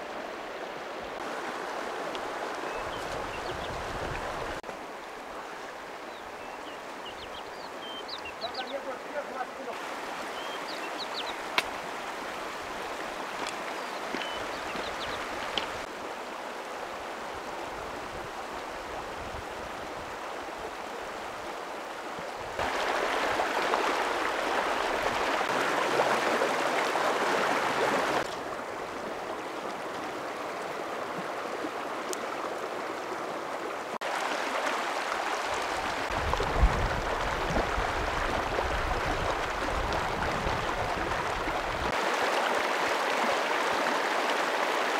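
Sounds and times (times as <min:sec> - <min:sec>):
river rushing over stones: 0:00.0 - 0:44.9.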